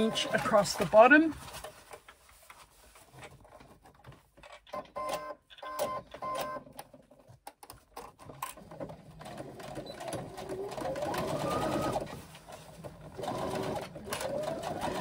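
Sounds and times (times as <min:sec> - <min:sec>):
sewing machine stitching: 0:00.0 - 0:01.1, 0:08.2 - 0:15.0
fabric handling: 0:00.0 - 0:04.3.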